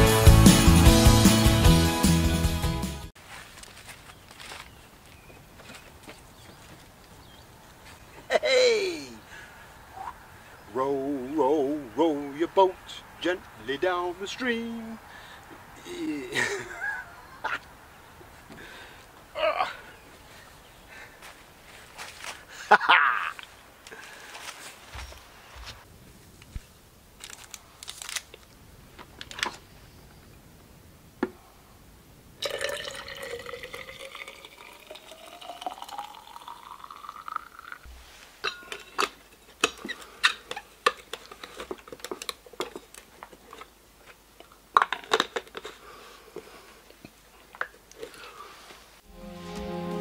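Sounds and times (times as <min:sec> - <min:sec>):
water pouring into a flask: 0:32.4 - 0:37.8.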